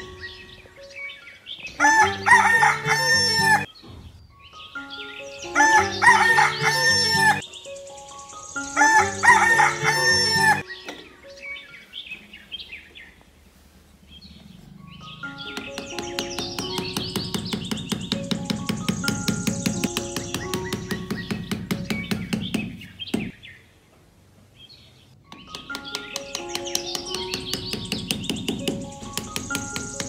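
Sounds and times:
rooster crowing: 1.8 - 3.7, 5.6 - 7.4, 8.8 - 10.6.

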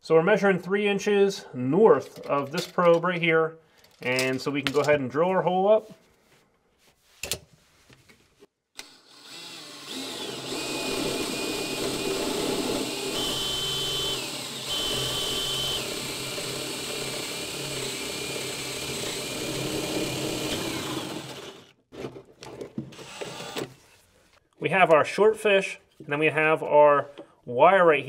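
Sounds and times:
cordless drill boring into wood: 8.8 - 21.7, 22.9 - 23.8.

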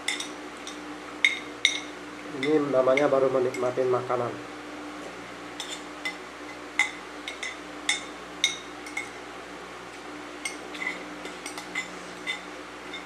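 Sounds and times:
spoon clinking against bowl: 0.0 - 3.7, 6.8 - 9.2
faint steady hum: 0.0 - 13.0.

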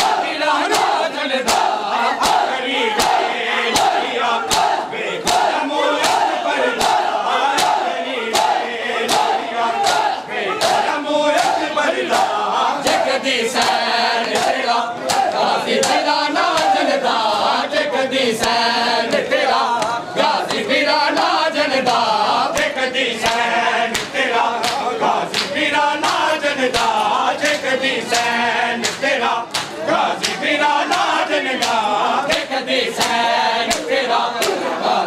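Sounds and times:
hands slapping chests: 0.0 - 13.0, 13.6 - 16.8, 22.6 - 34.6
men chanting in unison: 0.0 - 35.0.

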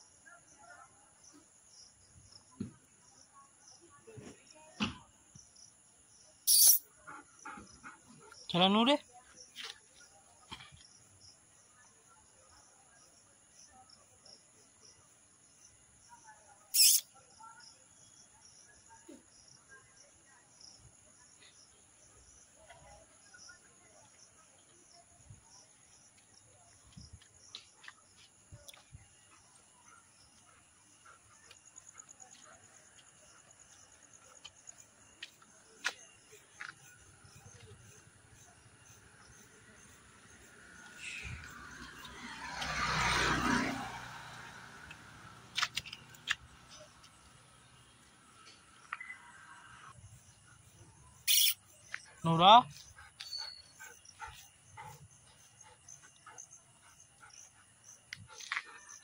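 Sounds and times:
crickets chirring: 1.2 - 59.0.

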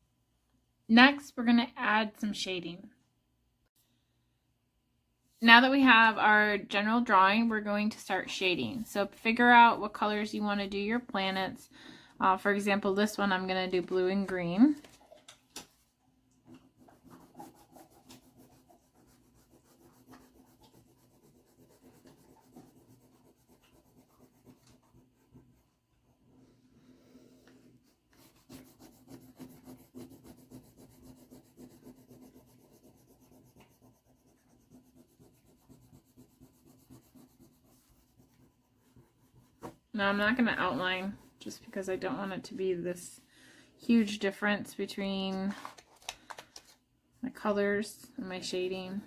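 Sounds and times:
pastel scratching on paper: 16.6 - 25.8, 27.5 - 42.4.

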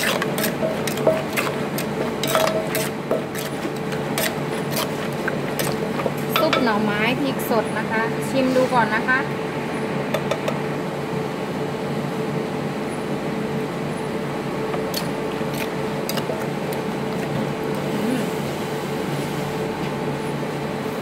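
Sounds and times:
pestle tossing food in mortar: 0.0 - 6.8, 14.8 - 18.0
steady mechanical hum: 0.0 - 21.0.

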